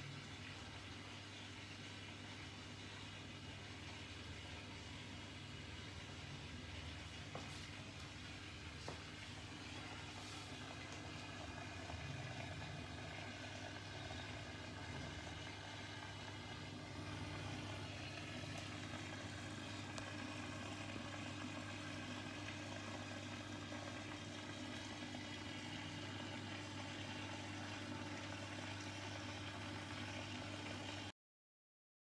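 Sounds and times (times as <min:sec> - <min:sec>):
aquarium pump hum: 0:00.0 - 0:31.1
air bubbles in water: 0:06.2 - 0:31.1.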